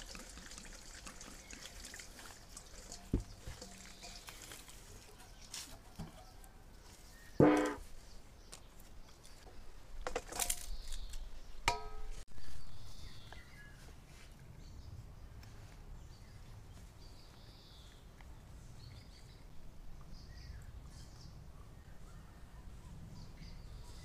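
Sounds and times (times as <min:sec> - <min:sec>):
metal bowl clanking: 0:02.9 - 0:04.5, 0:07.4 - 0:07.8, 0:11.7 - 0:12.2.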